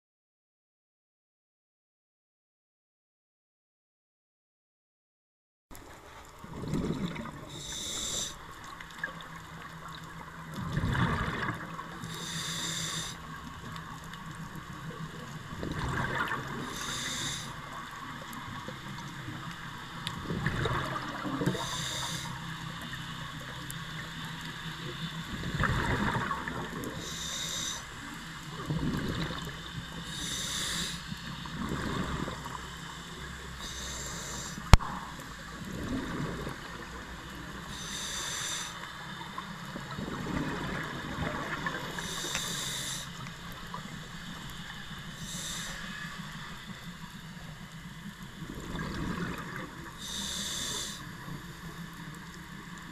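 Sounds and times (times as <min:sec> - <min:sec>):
exhaust bubbles rumbling: 0:06.3 - 0:12.1, 0:13.3 - 0:22.0, 0:24.8 - 0:27.4, 0:28.0 - 0:30.5, 0:31.1 - 0:37.7, 0:39.2 - 0:45.6, 0:46.3 - 0:52.9
regulator inhale hiss: 0:07.4 - 0:08.7, 0:11.7 - 0:15.0, 0:16.6 - 0:19.8, 0:21.0 - 0:39.2, 0:41.7 - 0:48.4, 0:49.3 - 0:52.5.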